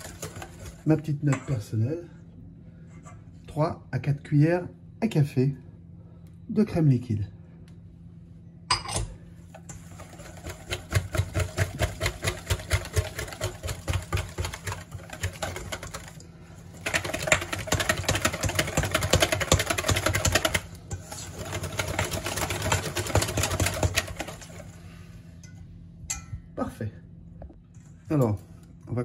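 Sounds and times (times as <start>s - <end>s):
whisk beating in a metal bowl: 0.0s - 1.5s, 9.6s - 24.8s.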